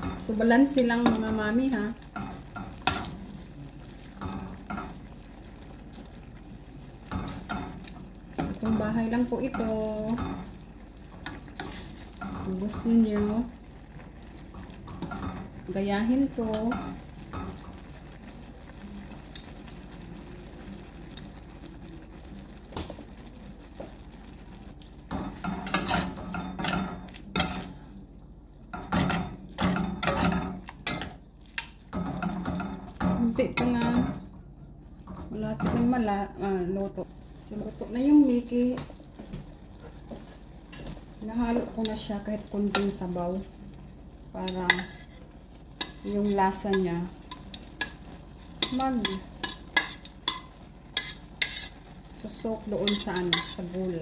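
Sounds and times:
metal tongs clinking on a pan: 0.0 - 3.2, 4.2 - 5.0, 7.1 - 10.6, 16.3 - 17.8, 25.1 - 27.8, 28.7 - 34.2, 41.7 - 43.1, 44.4 - 45.1, 45.8 - 51.8, 52.6 - 54.0
cooking noodles hissing: 47.3 - 52.0.

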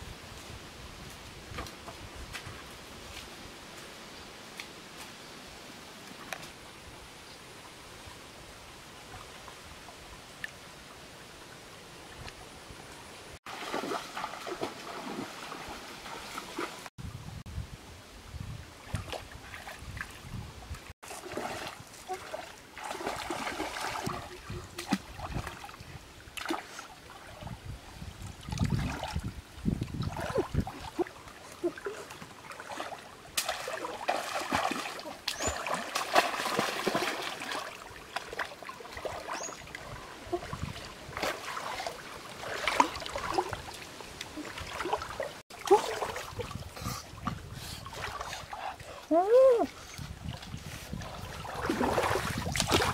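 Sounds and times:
water splashing from wading: 13.4 - 16.9, 21.0 - 27.6, 29.9 - 52.9.

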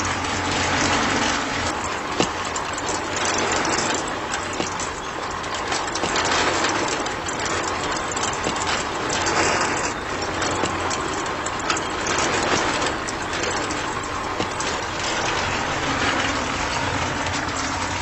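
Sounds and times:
crackling and crunching: 0.1 - 18.0.

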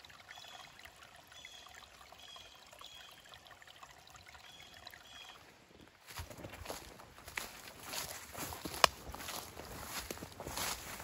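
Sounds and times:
small water splashes: 0.0 - 6.2
stream trickling over rocks: 0.0 - 11.0.

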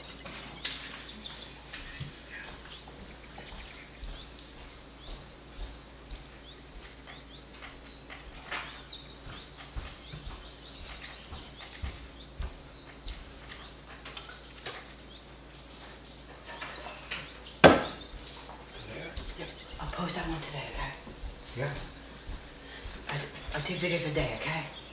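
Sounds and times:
small birds chirping: 0.0 - 24.9
sharp knock: 17.6 - 18.0.

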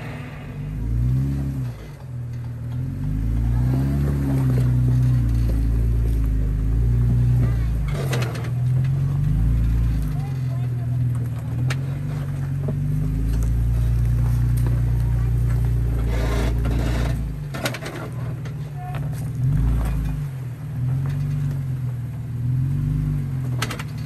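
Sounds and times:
engine revving under load: 0.0 - 24.0
scrapes and knocks on rock: 4.0 - 21.6.

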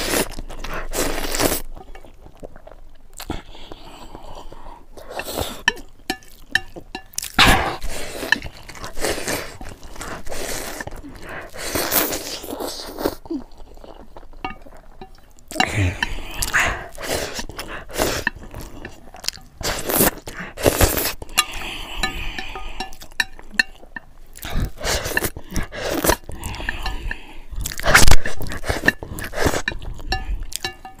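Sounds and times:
chewing and biting food: 0.0 - 22.1, 22.8 - 31.0
noisy mouth sounds: 15.5 - 18.9, 24.4 - 31.0.

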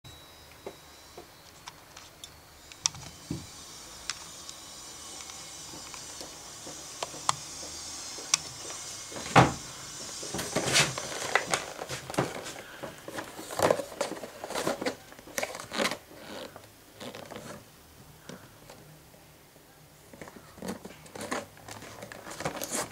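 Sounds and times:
plastic package crinkling: 10.4 - 17.6, 20.2 - 22.9.

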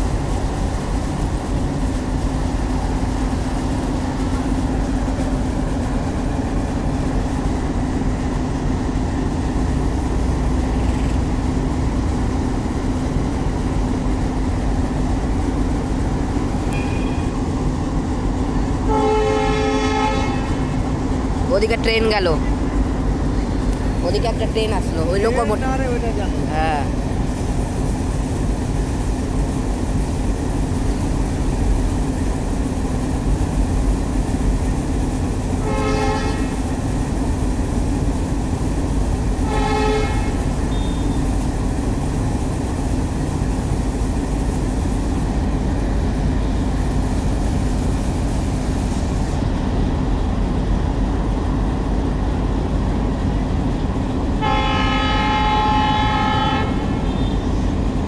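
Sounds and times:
diesel locomotive engine droning: 0.0 - 58.0
locomotive horn: 18.8 - 20.8, 35.6 - 36.6, 39.4 - 41.2, 54.4 - 57.4.

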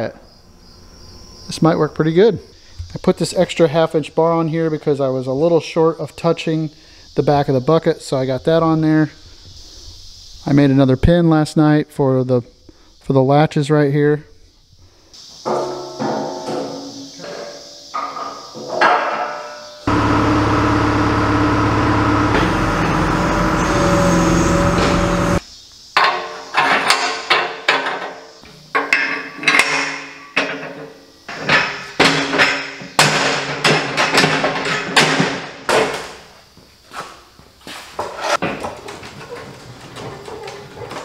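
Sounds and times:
loud power tool: 19.9 - 25.4.

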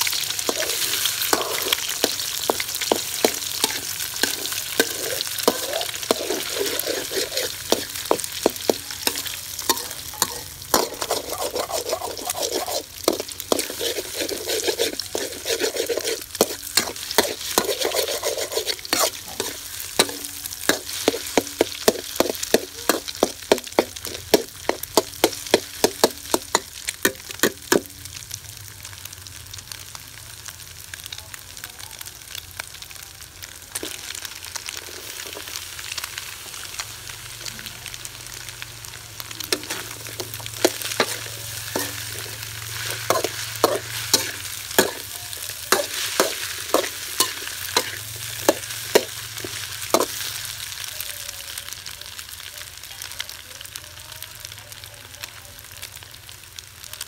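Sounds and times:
metal spoon scraping wok: 0.0 - 28.0, 34.7 - 35.6, 39.5 - 50.3
food sizzling in a wok: 0.0 - 57.0.

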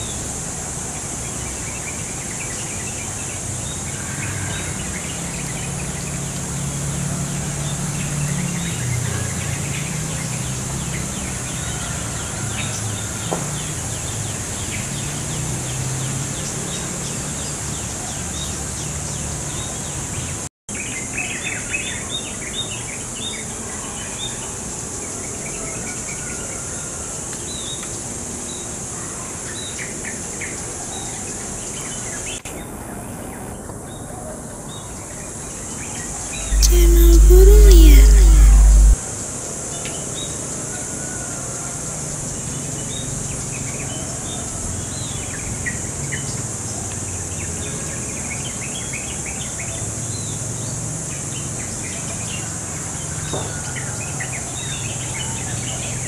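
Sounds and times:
low hum: 36.5 - 39.0.

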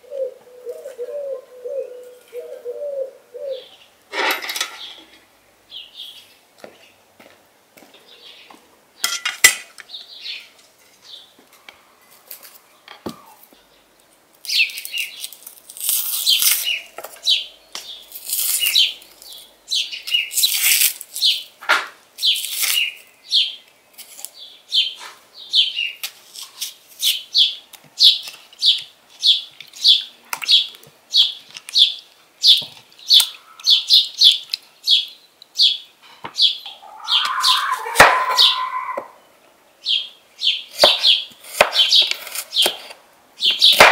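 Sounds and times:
onion skin rustling: 14.4 - 17.3, 18.0 - 19.5, 20.3 - 21.4, 22.2 - 23.1, 24.0 - 24.4
knife crunching through onion: 14.8 - 16.8, 18.1 - 19.2
bird chirping: 27.3 - 42.8.

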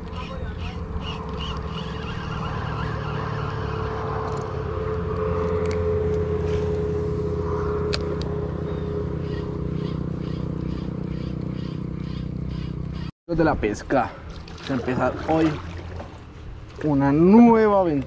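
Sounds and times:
engine running with whine: 0.0 - 13.1.

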